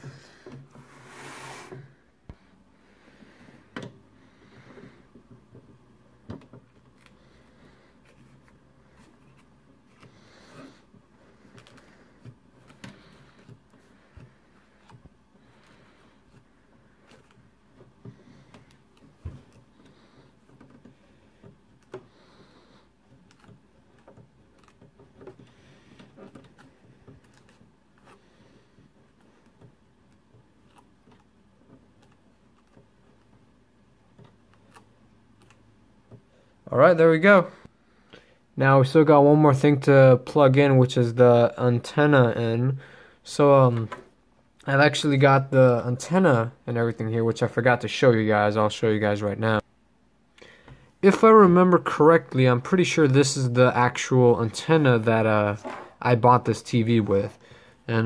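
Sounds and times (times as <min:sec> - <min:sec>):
cable connectors clicking and scraping: 0:23.0 - 0:28.2.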